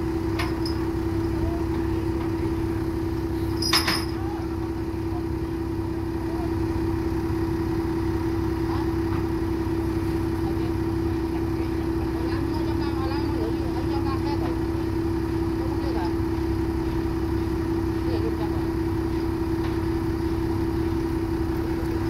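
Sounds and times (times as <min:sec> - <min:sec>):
loader engine idling: 0:00.0 - 0:22.0
sharp metal clank: 0:03.6 - 0:04.2.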